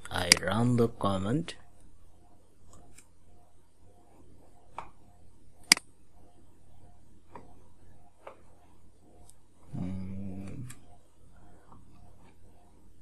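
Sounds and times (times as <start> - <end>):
low murmur: 9.7 - 10.9.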